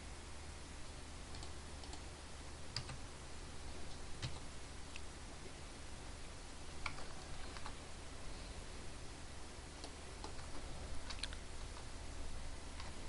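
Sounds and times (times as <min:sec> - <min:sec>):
faint low hum: 0:00.0 - 0:13.0
computer mouse and keyboard clicks: 0:06.8 - 0:07.8, 0:09.8 - 0:11.9.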